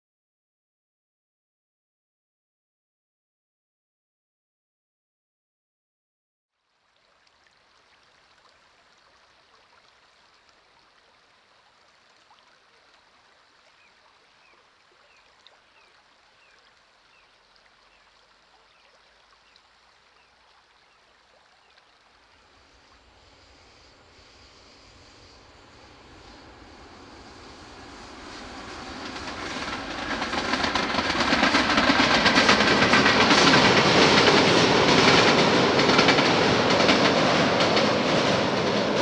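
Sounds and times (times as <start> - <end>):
river water over gravel: 6.6 - 35.8
low rumble: 22.4 - 33.3.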